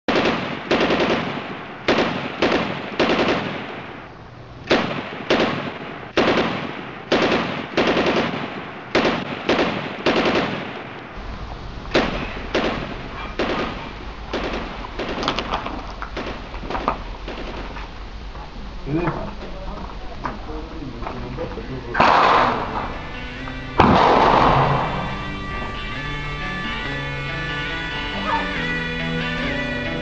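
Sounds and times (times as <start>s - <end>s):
pistol shots with ringing echo: 0.1s - 11.2s, 11.9s - 15.6s, 22.0s - 25.7s
steady low hum: 0.2s - 30.0s.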